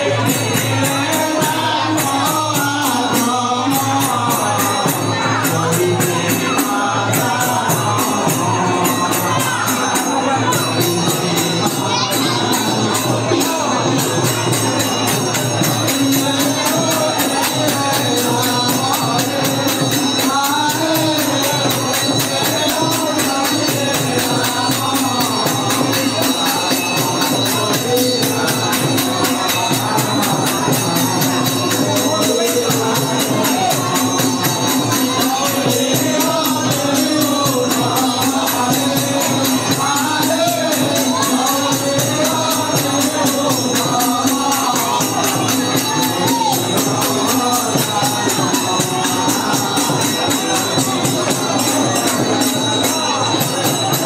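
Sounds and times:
fast percussion beat: 0:00.0 - 0:54.0
voices singing devotional song: 0:00.0 - 0:54.0.

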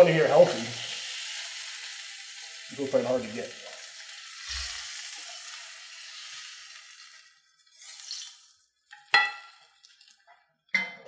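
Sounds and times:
fish sizzling in frying pan: 0:00.0 - 0:10.3.

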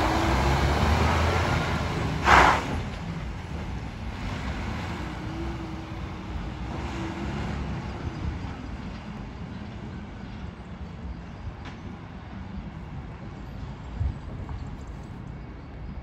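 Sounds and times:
diesel lorry engine rumble: 0:00.0 - 0:16.0
loud air hiss: 0:02.2 - 0:02.9.

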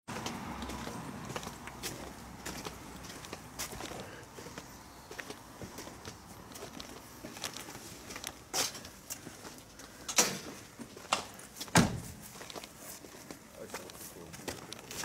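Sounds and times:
footsteps on pavement: 0:00.1 - 0:15.0.

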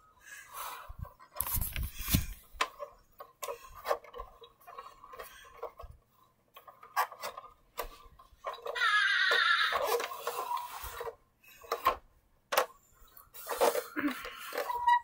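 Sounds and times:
plastic toy car clicking: 0:06.5 - 0:15.0.

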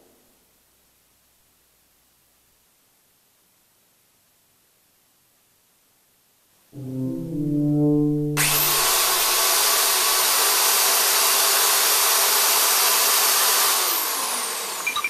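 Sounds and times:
horn chord: 0:06.8 - 0:09.6
hair dryer motor and air: 0:08.4 - 0:15.0.

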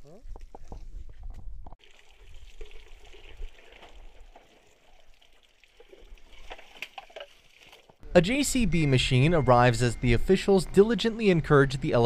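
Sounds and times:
water trickling and splashing: 0:01.8 - 0:08.0.

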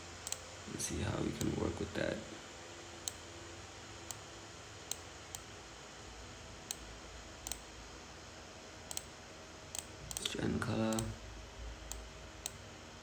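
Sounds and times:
faint background hum: 0:00.0 - 0:13.0
computer mouse clicking: 0:00.2 - 0:00.4, 0:06.7 - 0:07.7, 0:08.9 - 0:09.1, 0:10.9 - 0:11.2, 0:11.9 - 0:12.6.

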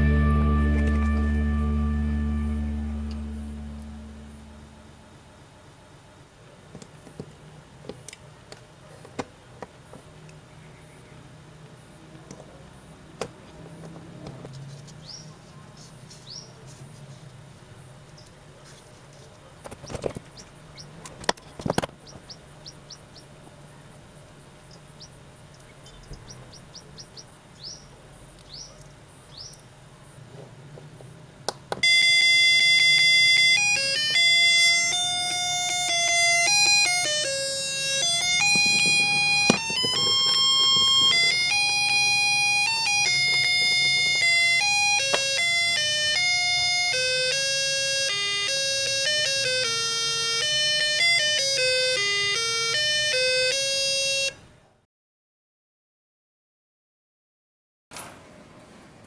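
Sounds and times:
electronic doorbell tune: 0:00.0 - 0:04.9, 0:31.8 - 0:54.4.

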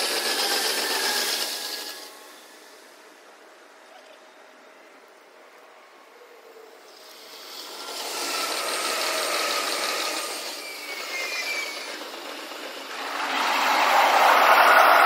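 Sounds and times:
trains passing with hissing rush: 0:00.0 - 0:03.8, 0:04.5 - 0:15.0
faint gliding whines: 0:07.8 - 0:15.0.

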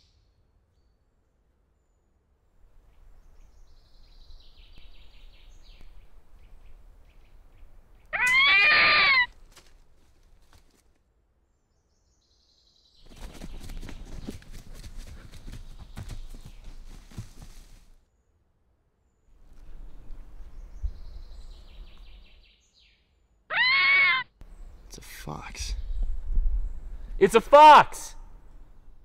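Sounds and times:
faint birdsong: 0:00.0 - 0:29.0
loud animal call: 0:08.2 - 0:09.3, 0:23.5 - 0:24.3.

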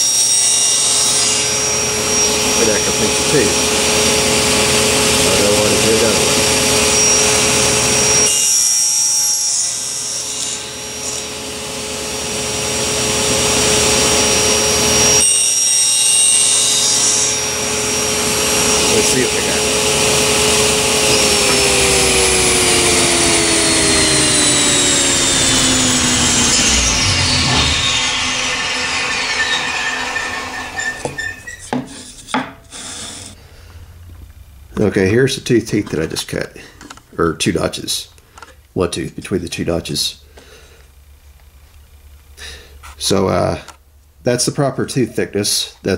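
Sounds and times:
saw blade cutting wood: 0:00.0 - 0:33.4
table saw humming: 0:00.0 - 0:33.4.

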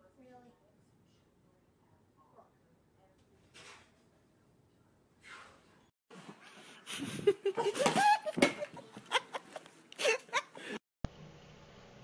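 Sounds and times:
person laughing: 0:06.6 - 0:10.8.

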